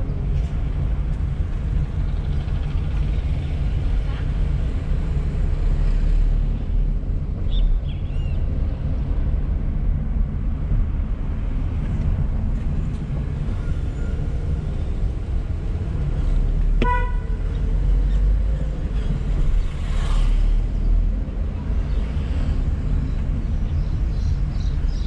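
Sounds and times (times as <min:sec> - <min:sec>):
car engine and road rumble: 0:00.0 - 0:25.0
car horn toot: 0:16.8 - 0:17.4.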